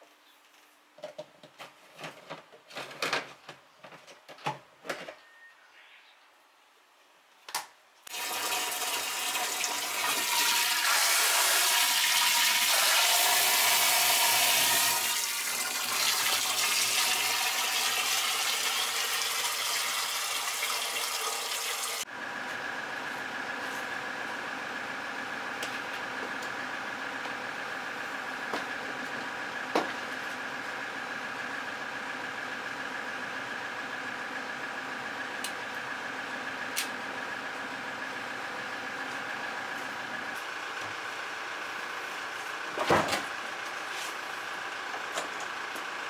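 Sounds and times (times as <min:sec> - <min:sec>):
water gushing into plastic tank: 0:08.1 - 0:22.0.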